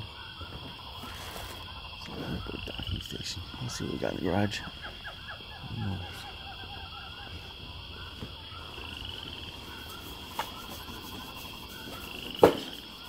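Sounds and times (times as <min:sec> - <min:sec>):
small chirping calls: 0:00.1 - 0:13.0
sharp knock: 0:12.4 - 0:12.8.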